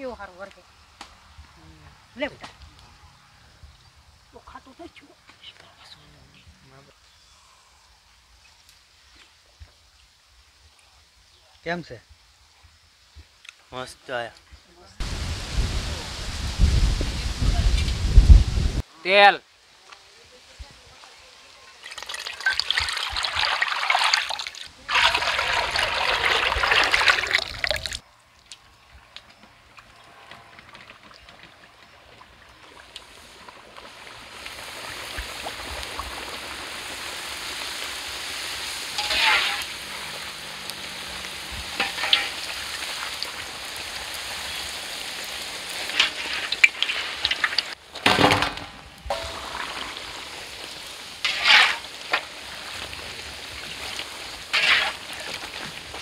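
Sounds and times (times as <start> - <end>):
sharp splashes or knocks: 21.8 - 28.0, 41.7 - 43.4, 45.9 - 52.9
deep-frying sizzle: 32.6 - 47.8, 49.1 - 56.0
oil pouring into metal pan: 49.1 - 51.9.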